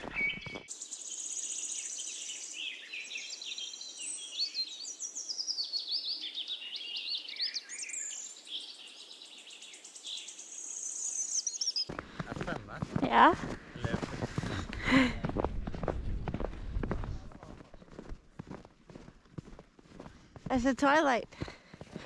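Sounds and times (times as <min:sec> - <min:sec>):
songbirds chirping and singing: 0:00.0 - 0:12.5.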